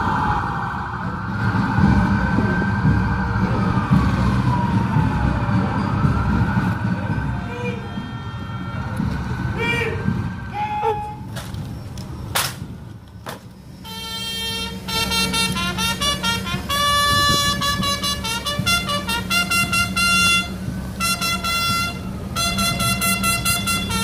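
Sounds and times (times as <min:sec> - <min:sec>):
brass horns playing: 0:13.8 - 0:24.0.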